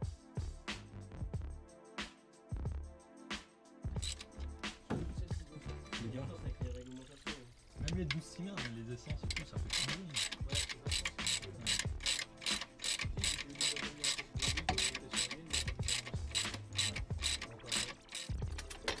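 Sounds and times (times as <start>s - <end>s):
ratchet wrench clicking: 4.0s - 4.6s, 7.8s - 19.0s.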